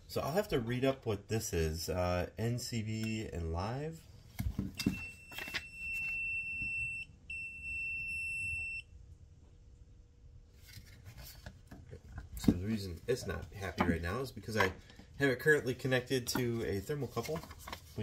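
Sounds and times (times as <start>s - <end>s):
multimeter high-pitched beep: 4.8s - 8.9s.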